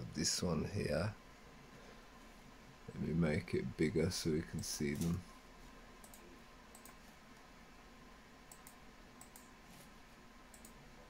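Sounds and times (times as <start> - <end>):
computer mouse clicks: 6.0 - 7.0, 8.5 - 9.6, 10.5 - 10.8.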